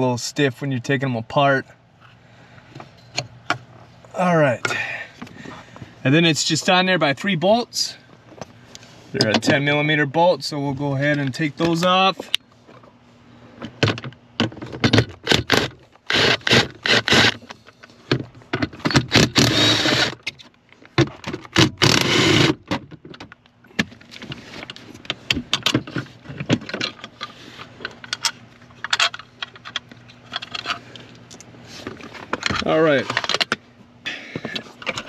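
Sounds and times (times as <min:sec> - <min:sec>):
cordless power tool spinning: 0:16.1 - 0:17.4, 0:19.1 - 0:20.2, 0:21.8 - 0:22.6.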